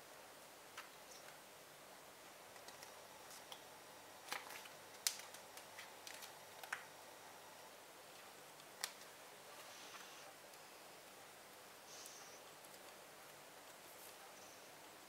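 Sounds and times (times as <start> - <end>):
faint paper rustle: 4.2 - 6.9, 11.9 - 14.5.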